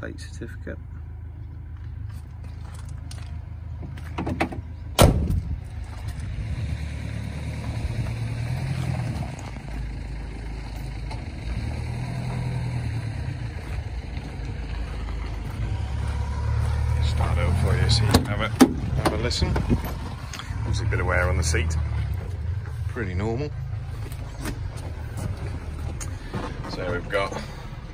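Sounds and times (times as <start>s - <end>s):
truck door slamming: 4.2s - 5.6s
steady low rumble: 13.0s - 27.9s.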